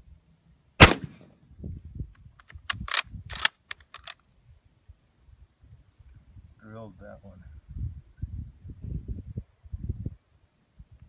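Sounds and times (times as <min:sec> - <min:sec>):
rifle shot with echo: 0:00.8 - 0:01.3
rifle bolt clacking: 0:02.4 - 0:04.2.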